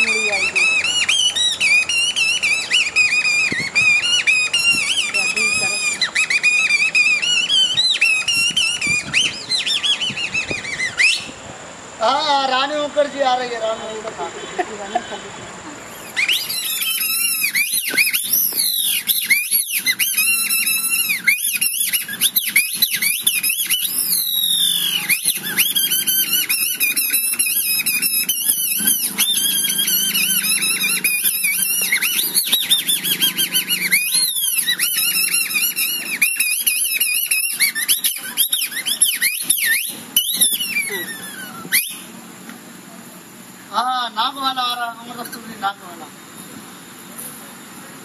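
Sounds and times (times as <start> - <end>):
high-pitched squeaking reed voice: 0.0 - 11.4, 15.9 - 42.1.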